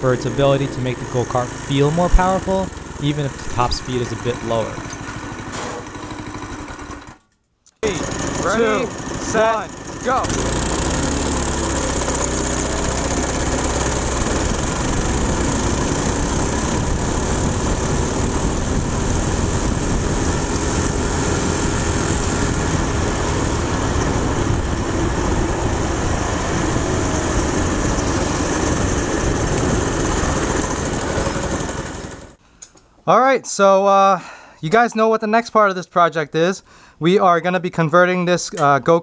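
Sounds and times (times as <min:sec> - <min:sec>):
go-kart engine at full throttle: 0:00.0 - 0:07.2, 0:07.8 - 0:32.4
wind and road noise: 0:10.2 - 0:32.4.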